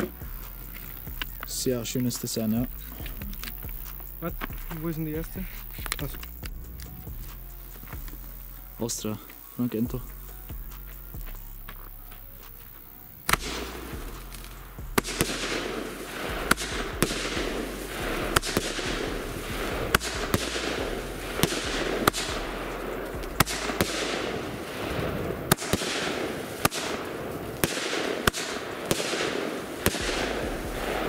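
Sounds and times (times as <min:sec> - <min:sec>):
firework hiss: 0:00.0 - 0:31.0
firework bangs: 0:12.4 - 0:31.0.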